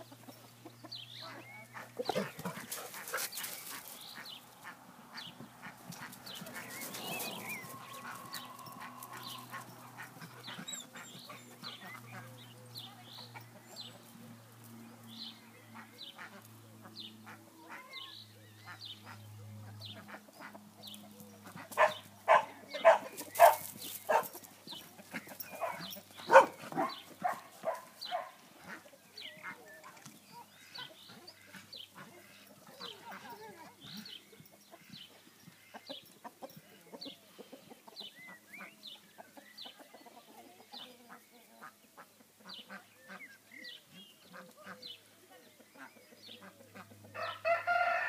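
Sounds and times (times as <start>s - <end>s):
birds calling: 0.0s - 48.0s.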